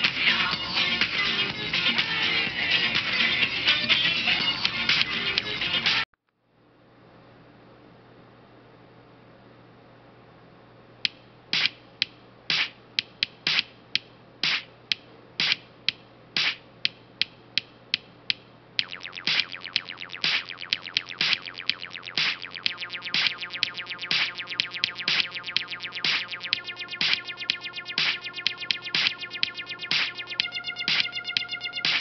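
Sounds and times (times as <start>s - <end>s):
fast repeating pitched notes: 18.8s - 32.0s
sparse percussive beat: 18.8s - 32.0s.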